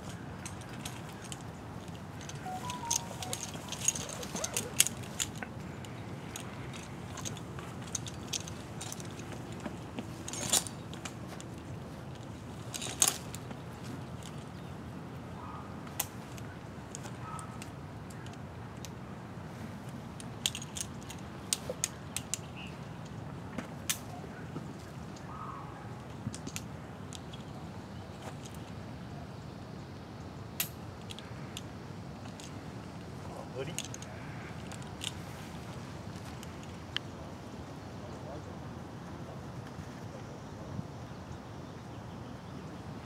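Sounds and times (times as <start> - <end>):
metal climbing hardware clinking: 0.0 - 14.6, 20.2 - 23.2, 26.3 - 27.6, 30.6 - 32.6, 33.6 - 35.2.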